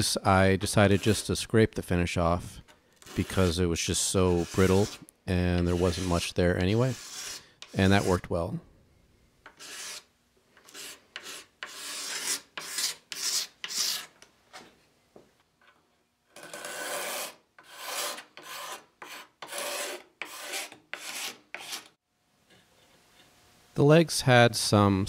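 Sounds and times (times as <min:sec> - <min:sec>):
hand scraper scraping wood: 0:00.6 - 0:01.3, 0:03.0 - 0:08.3, 0:09.5 - 0:14.1, 0:16.4 - 0:22.0.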